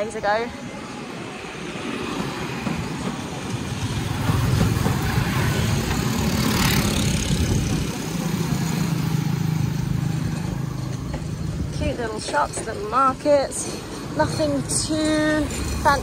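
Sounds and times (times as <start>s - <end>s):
motorbike engines passing: 3.6s - 12.5s.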